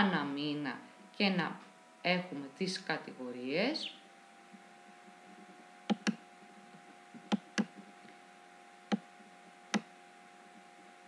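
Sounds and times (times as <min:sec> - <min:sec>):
faint electrical hum: 0:00.0 - 0:11.0
computer mouse clicking: 0:05.9 - 0:06.2, 0:07.1 - 0:07.9.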